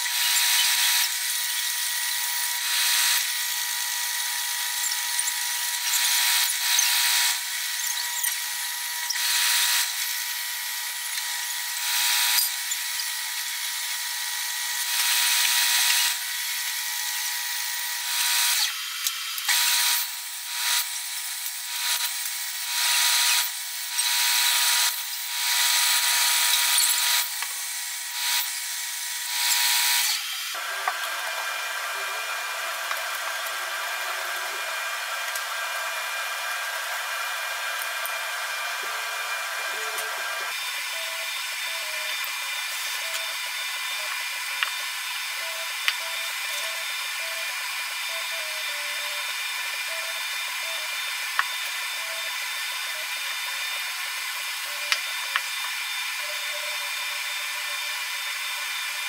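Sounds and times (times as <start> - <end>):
metal grinding on sanding belt: 0.0 - 30.4.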